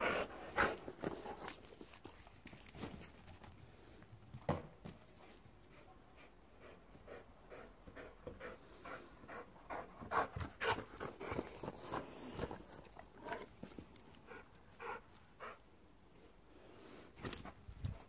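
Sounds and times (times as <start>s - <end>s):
dog panting: 5.6s - 12.0s, 14.2s - 15.7s.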